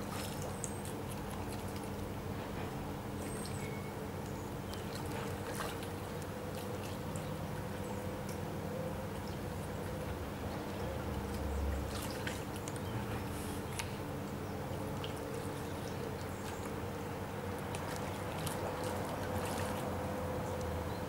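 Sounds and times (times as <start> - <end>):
river water running over stones: 0.0 - 2.3, 10.6 - 20.9
faint steady hum: 0.0 - 21.0.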